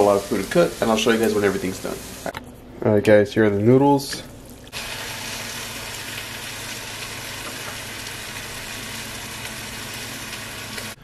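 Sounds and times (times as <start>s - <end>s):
food sizzling in a pan: 0.0s - 2.3s, 4.7s - 11.0s.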